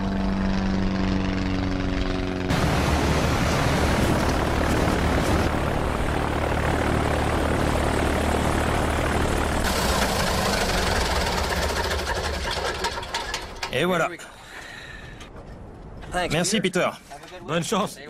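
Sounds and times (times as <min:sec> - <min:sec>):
plane engine and propeller droning: 0:00.0 - 0:13.7.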